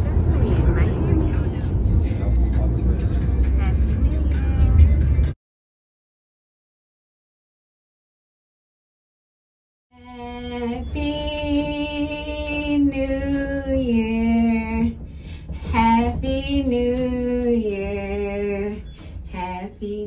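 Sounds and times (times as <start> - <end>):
steady low bass: 0.0 - 5.3.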